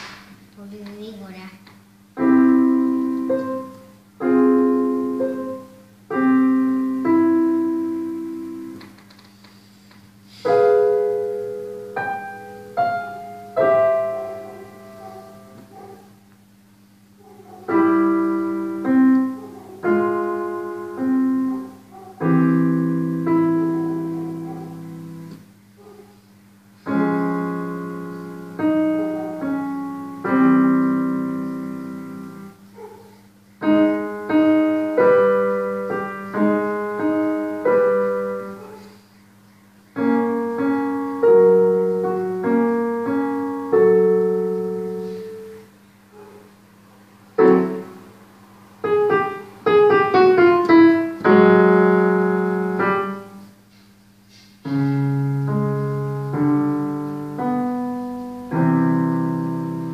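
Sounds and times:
digital piano playing: 0:02.1 - 0:08.8, 0:10.4 - 0:15.6, 0:17.6 - 0:25.4, 0:26.9 - 0:32.6, 0:33.6 - 0:38.7, 0:39.9 - 0:45.6, 0:47.4 - 0:53.4, 0:54.7 - 0:59.9.

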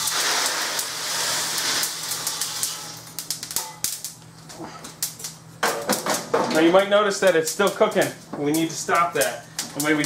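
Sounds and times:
coffee beans pouring rattle: 0:00.0 - 0:03.6
coffee beans cracking: 0:00.0 - 0:06.0.

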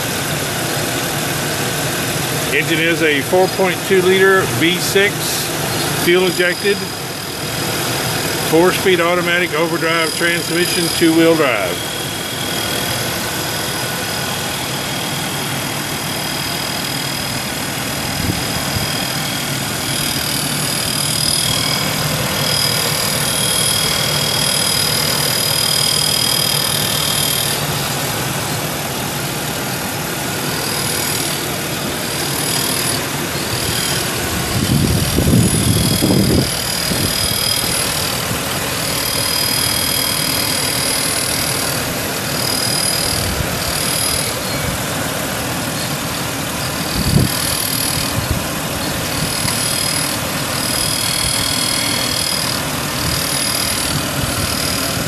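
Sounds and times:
engine idling: 0:00.0 - 0:55.0
high-pitched whine: 0:00.0 - 0:55.0.

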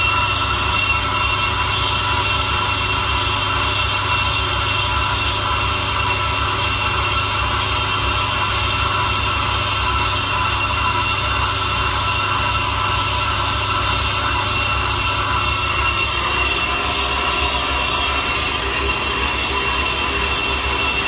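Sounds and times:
high-pitched metallic whine: 0:00.0 - 0:21.0
low hum of lathe: 0:13.6 - 0:21.0.

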